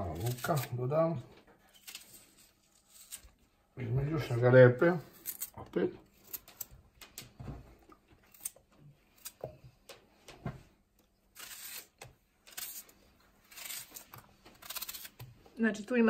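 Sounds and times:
knife cutting vegetables: 0.0s - 0.8s, 11.3s - 15.3s.

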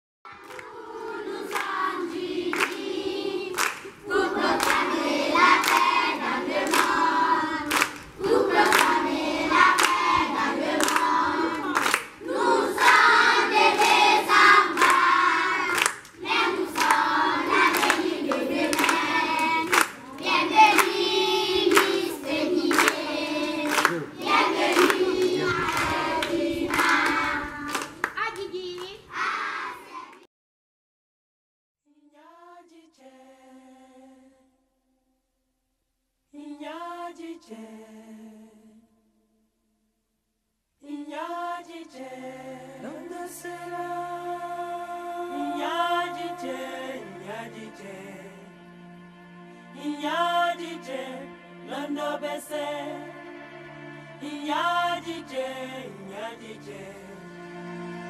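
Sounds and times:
children singing: 0.3s - 28.0s, 29.2s - 30.2s, 42.4s - 48.3s
hand claps: 0.4s - 0.8s, 1.5s - 1.9s, 2.5s - 2.9s, 3.5s - 4.0s, 4.6s - 5.0s, 5.6s - 7.0s, 7.7s - 9.0s, 9.7s - 12.2s, 12.8s - 29.0s.

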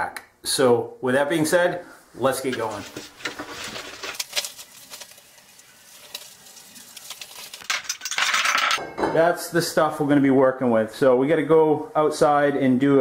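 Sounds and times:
metal scraping rattle: 7.0s - 8.8s
steel tubing clinking on metal table: 7.7s - 9.1s.

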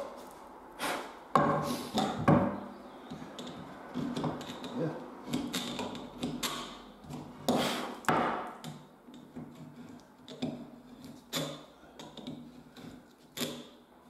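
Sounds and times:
chisel chopping wood: 7.5s - 8.8s.

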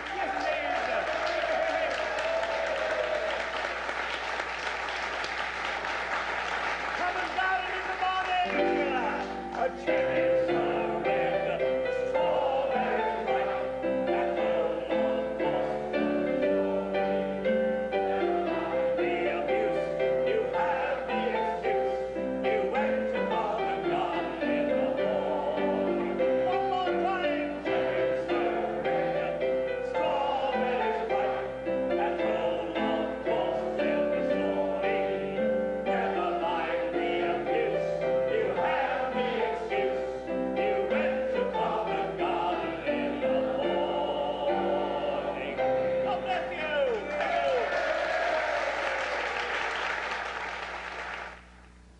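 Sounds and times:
many voices singing along: 0.0s - 4.0s, 8.6s - 46.0s
music-hall tune on piano: 0.0s - 48.4s.

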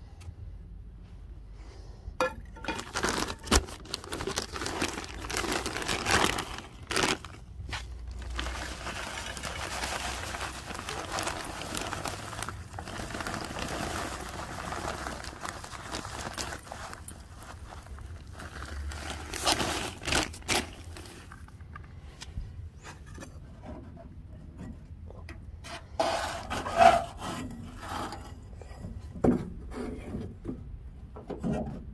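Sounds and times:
bag crinkling and rustling: 2.2s - 21.7s
wood chips pouring into skillet: 8.2s - 17.1s.

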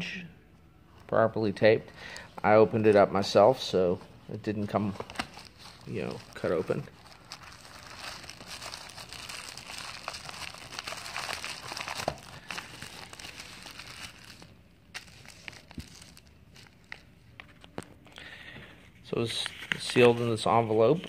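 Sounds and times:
plastic bag crinkling: 5.0s - 17.1s.

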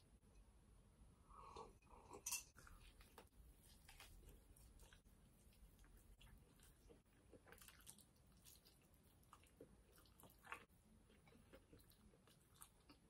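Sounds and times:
chewing and biting: 5.8s - 13.0s.

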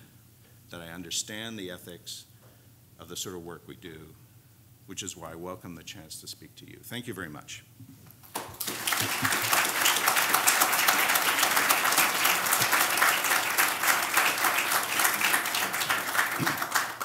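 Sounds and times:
audience applauding: 8.3s - 17.0s.

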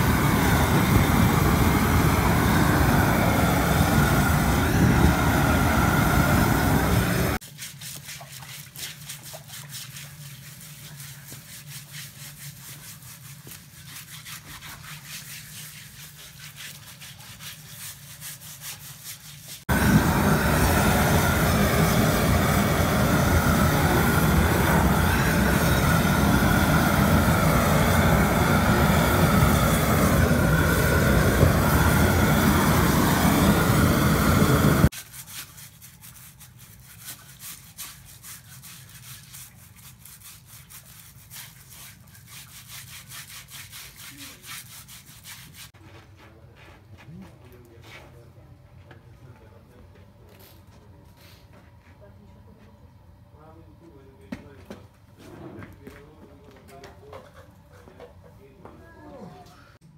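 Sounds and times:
gas burner torch rushing: 0.0s - 7.4s, 19.7s - 34.9s.

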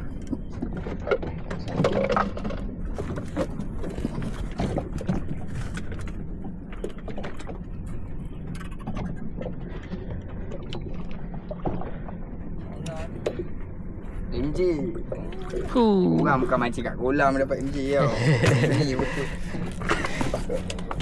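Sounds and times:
boat engine running: 0.0s - 21.0s.

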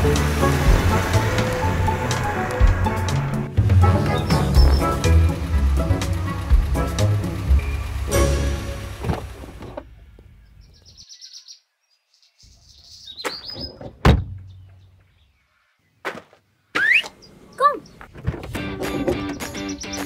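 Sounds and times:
background music: 0.0s - 9.5s, 18.5s - 20.0s
small birds chirping: 3.9s - 5.4s, 9.6s - 16.0s, 16.8s - 18.2s, 19.1s - 20.0s
van door shutting: 8.0s - 9.9s, 13.7s - 14.5s.

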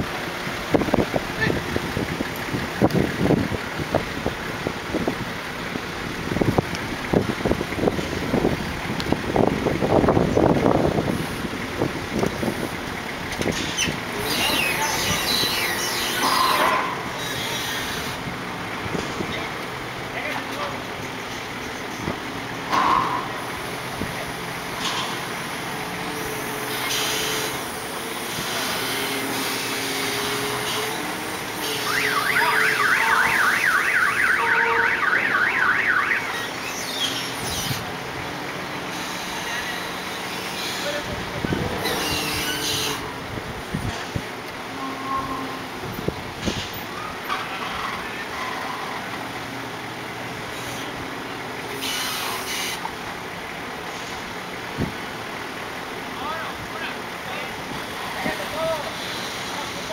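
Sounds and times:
forklift engine running: 0.0s - 59.9s
electronic alarm warbling: 31.8s - 36.7s.

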